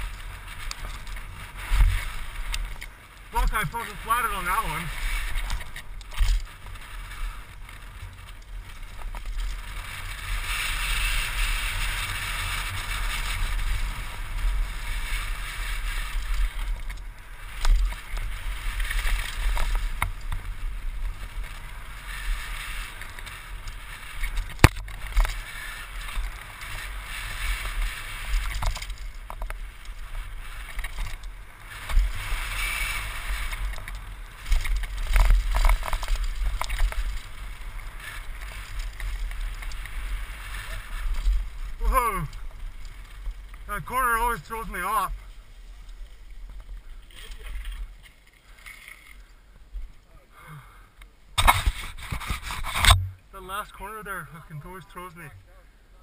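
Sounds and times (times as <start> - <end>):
bike rattling and knocking: 22.4 - 41.6.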